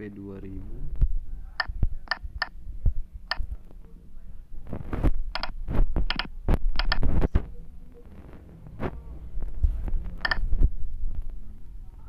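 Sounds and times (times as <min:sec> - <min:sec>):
dull low thumps: 0:00.6 - 0:03.6, 0:08.7 - 0:11.5
touchscreen key-press clicks: 0:01.6 - 0:02.6, 0:05.4 - 0:07.0, 0:10.2 - 0:10.4.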